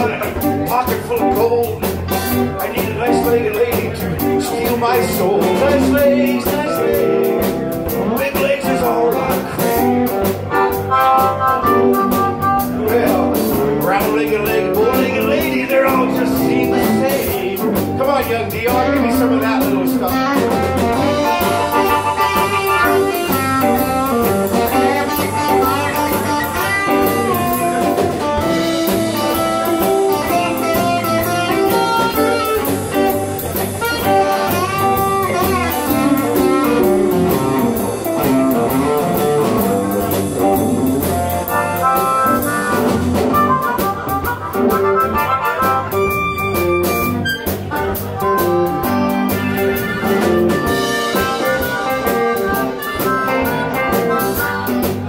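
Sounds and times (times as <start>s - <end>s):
electric blues band playing: 0.0s - 55.0s
harmonica with bending notes: 10.0s - 13.8s, 20.1s - 55.0s.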